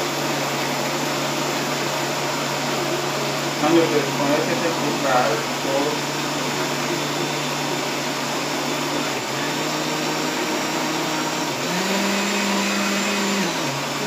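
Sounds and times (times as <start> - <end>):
electric blender running: 0.0 - 14.0.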